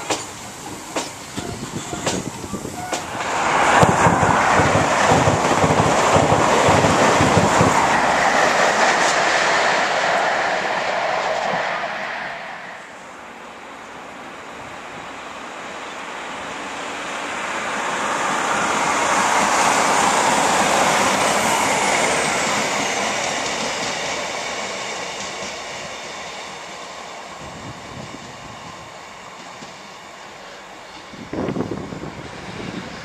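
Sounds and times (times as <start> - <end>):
diesel train passing: 0.0 - 33.0
wind rumble on microphone: 31.2 - 33.0.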